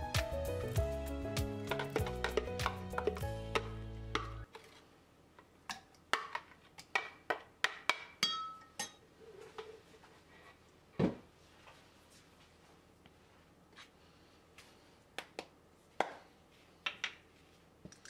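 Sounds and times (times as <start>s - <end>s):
background music: 0.0s - 4.5s.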